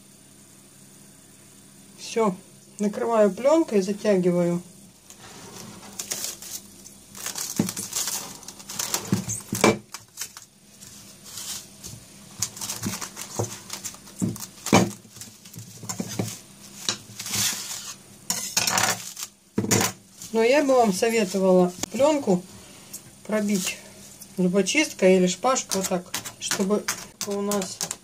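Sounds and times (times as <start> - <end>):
cling film crinkling: 5.0 - 18.0, 18.8 - 21.9, 25.4 - 28.0.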